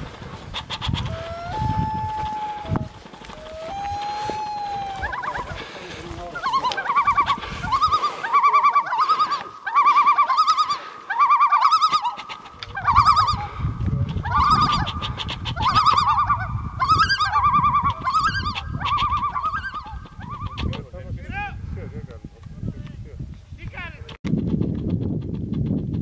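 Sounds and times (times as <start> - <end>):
trilling animal calls: 0.5 - 20.9.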